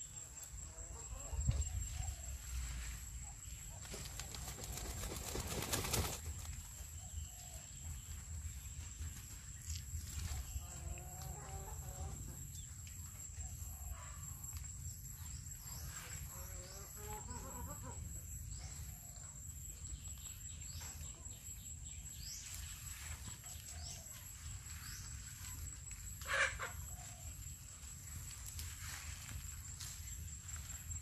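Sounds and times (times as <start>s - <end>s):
poultry clucking: 16.5s - 18.2s, 26.2s - 27.0s.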